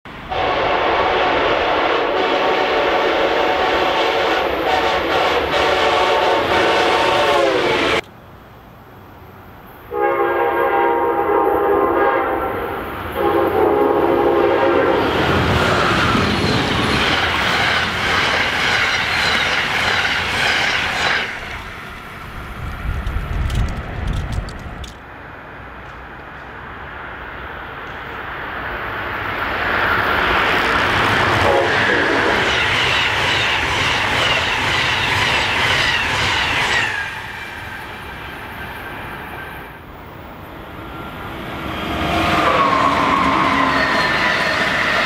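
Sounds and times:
train passing at speed: 0:00.1 - 0:45.0
train air horn blasts: 0:00.3 - 0:08.0, 0:09.9 - 0:15.2, 0:31.4 - 0:32.4, 0:42.2 - 0:44.2.

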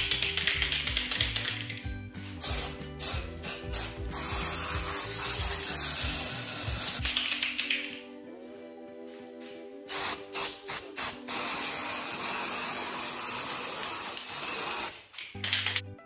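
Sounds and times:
aerosol can rattling: 0:00.0 - 0:08.0, 0:13.8 - 0:15.8
spray can hissing: 0:00.0 - 0:08.1, 0:09.9 - 0:15.8.

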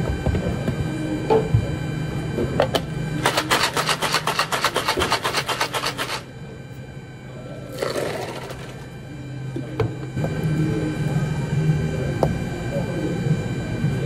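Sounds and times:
ice rattling in shaker: 0:03.2 - 0:06.2
drink pouring into cup: 0:07.8 - 0:08.8.

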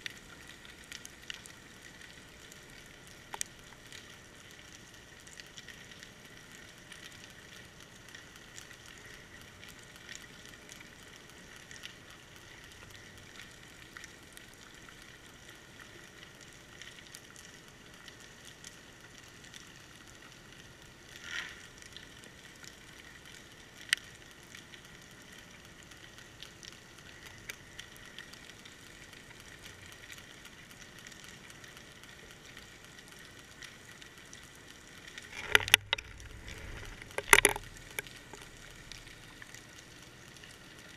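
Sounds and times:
underwater crackle and hiss: 0:00.0 - 0:40.9
small clicks: 0:03.3 - 0:04.1, 0:26.4 - 0:40.9.

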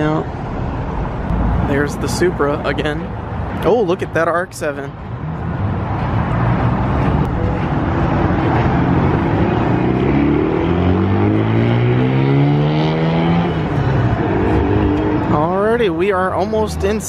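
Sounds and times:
road and traffic noise: 0:00.0 - 0:17.0
car engine accelerating hard: 0:05.2 - 0:15.5.

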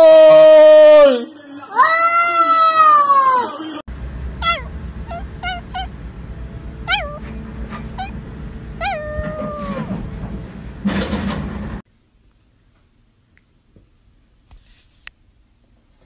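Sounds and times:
low background rumble: 0:03.9 - 0:11.8
dog howl: 0:04.4 - 0:06.0, 0:06.9 - 0:07.2, 0:07.9 - 0:08.2, 0:08.8 - 0:10.0
small dog yipping and whining: 0:04.4 - 0:06.0, 0:06.8 - 0:08.2, 0:08.8 - 0:10.0.

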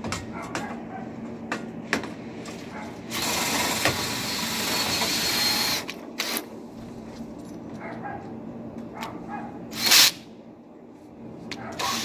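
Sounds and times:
cordless drill spinning brush: 0:03.1 - 0:06.4.

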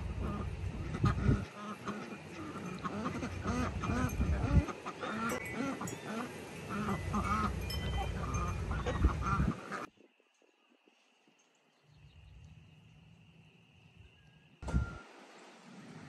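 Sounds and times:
ducks quacking: 0:00.0 - 0:09.9
wind rumble on microphone: 0:00.0 - 0:09.9, 0:14.0 - 0:16.0.

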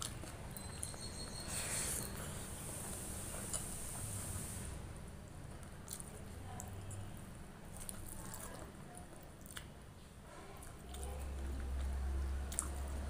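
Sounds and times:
chewing: 0:00.0 - 0:04.2, 0:05.5 - 0:13.0.

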